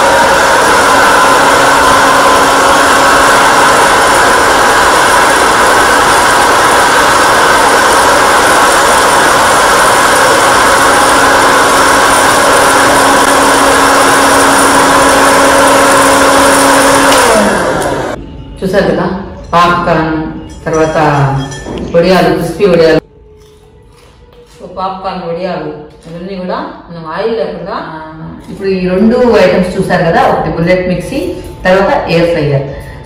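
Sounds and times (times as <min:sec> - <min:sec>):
air fryer motor whirring: 0:00.0 - 0:18.2.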